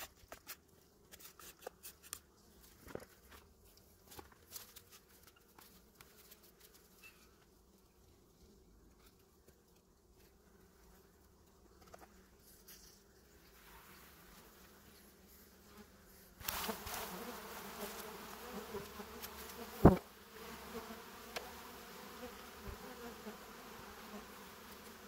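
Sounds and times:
honeybee colony humming: 0:13.3 - 0:25.0.

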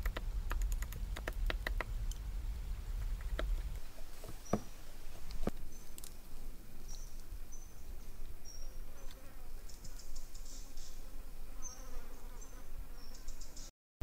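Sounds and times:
steady low rumble: 0:00.0 - 0:04.2
insects chirping: 0:00.0 - 0:11.0.

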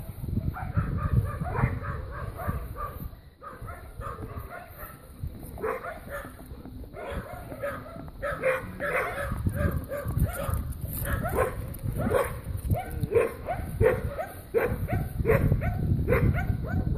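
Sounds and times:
dog yipping: 0:07.0 - 0:16.9.

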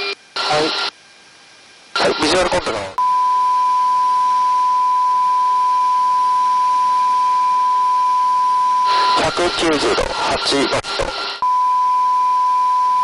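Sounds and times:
steady beep tone: 0:03.0 - 0:09.8, 0:11.4 - 0:13.0.

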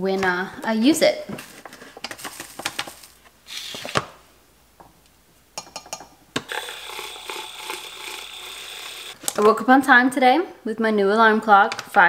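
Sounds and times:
handheld milk frother running: 0:06.4 - 0:09.2.

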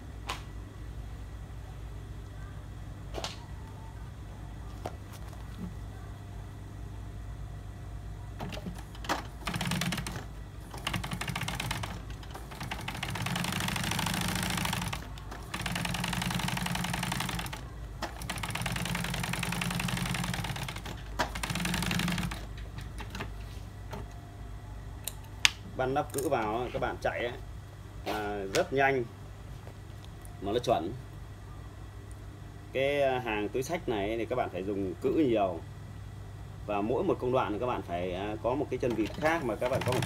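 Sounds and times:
steady low hum: 0:00.0 - 0:40.0
sewing machine stitching: 0:08.4 - 0:22.5, 0:38.9 - 0:40.0.

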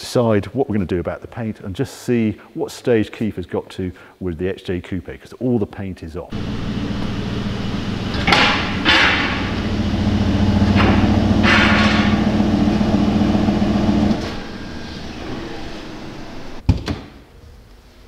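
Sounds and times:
car engine running: 0:06.4 - 0:16.6.

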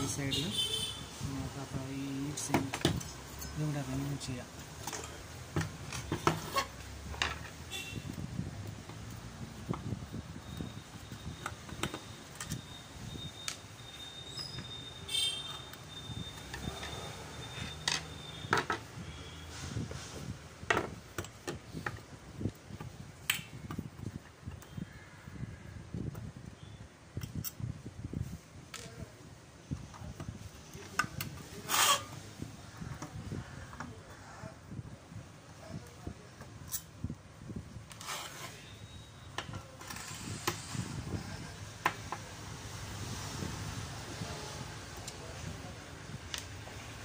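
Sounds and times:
handling noise: 0:04.5 - 0:19.0, 0:37.6 - 0:42.4
screwdriver scraping metal: 0:31.6 - 0:32.2, 0:37.9 - 0:38.7, 0:39.8 - 0:41.0.

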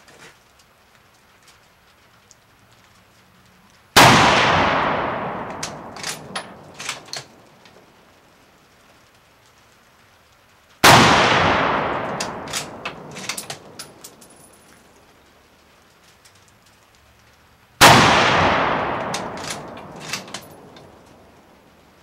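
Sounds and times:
rifle shots echoing: 0:04.0 - 0:07.4, 0:10.8 - 0:14.6, 0:17.8 - 0:21.4.

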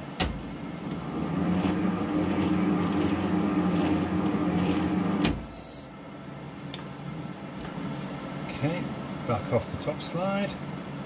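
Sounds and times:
lathe humming: 0:00.6 - 0:05.4.

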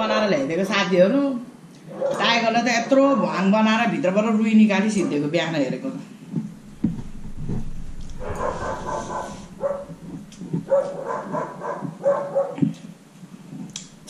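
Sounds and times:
dog making high calls: 0:10.7 - 0:12.6.

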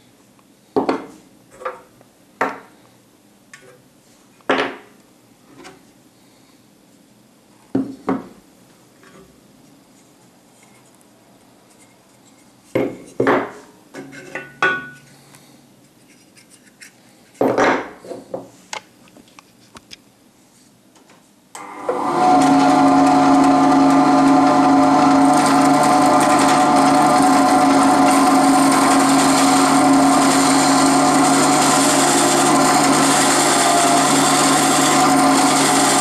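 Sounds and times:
band saw humming: 0:21.6 - 0:36.0.

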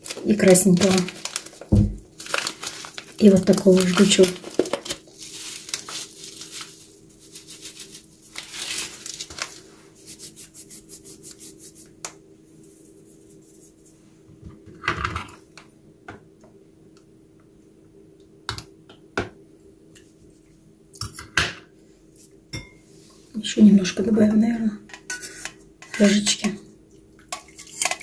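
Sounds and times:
paper packet rustling: 0:00.0 - 0:10.5.

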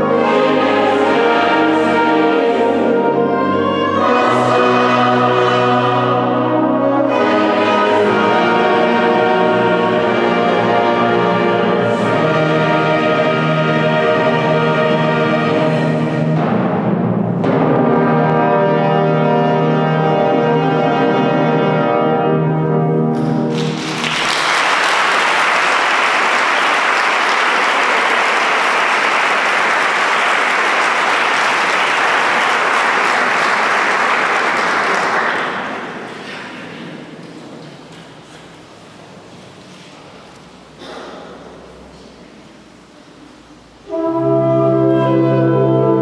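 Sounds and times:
choir and concert band chord: 0:00.0 - 0:37.2, 0:43.6 - 0:46.0
timpani: 0:00.0 - 0:38.5, 0:43.8 - 0:46.0
audience applause: 0:23.4 - 0:37.4.

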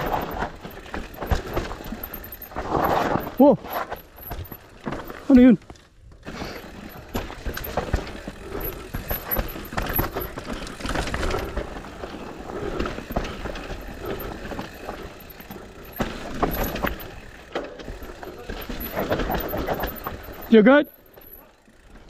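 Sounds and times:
bike chain and frame rattling: 0:00.0 - 0:22.0
bike tyres on dirt and rocks: 0:00.0 - 0:22.0.

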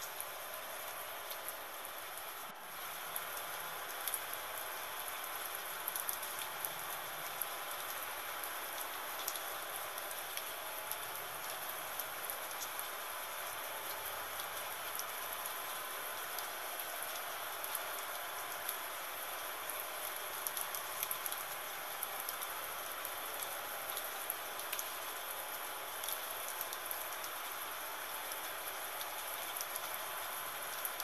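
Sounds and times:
gentle rain hissing: 0:00.0 - 0:31.0
raindrop ticks: 0:01.2 - 0:02.3, 0:02.9 - 0:04.7, 0:05.5 - 0:12.8, 0:15.8 - 0:18.8, 0:20.4 - 0:21.6, 0:22.2 - 0:25.4, 0:26.0 - 0:27.6, 0:28.4 - 0:31.0.

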